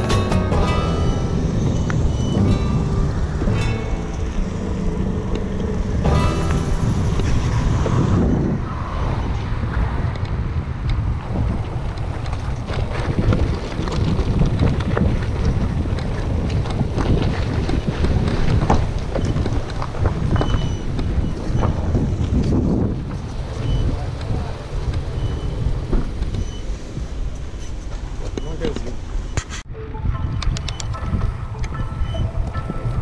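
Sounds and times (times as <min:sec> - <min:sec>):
tyre rumble on rough road: 0:00.0 - 0:29.7
wind buffeting microphone: 0:00.6 - 0:33.0
bicycle clicks and rattles: 0:10.2 - 0:21.2.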